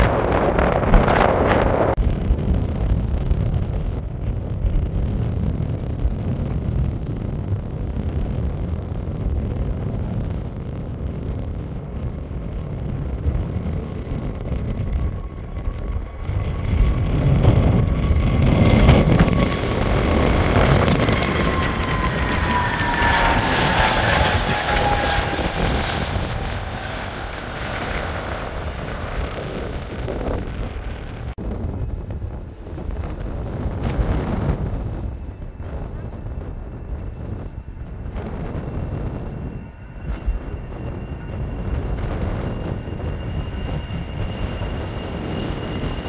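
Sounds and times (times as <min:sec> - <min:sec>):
distant jet engines rumbling: 0:00.0 - 0:46.0
wind buffeting microphone: 0:00.0 - 0:46.0.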